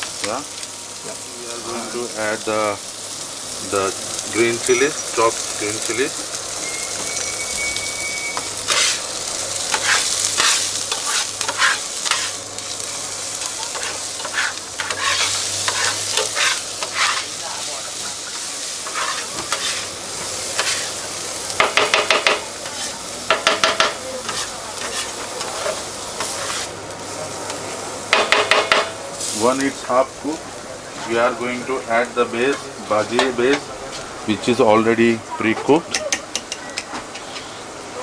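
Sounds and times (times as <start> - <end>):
onions sizzling in oil: 0.0 - 36.6
metal spatula scraping griddle: 7.1 - 9.1, 9.7 - 12.4, 13.7 - 17.4, 18.3 - 21.0, 21.9 - 26.8
spatula tapping on griddle: 21.6 - 22.4, 23.3 - 25.0, 28.1 - 29.0, 35.9 - 36.9.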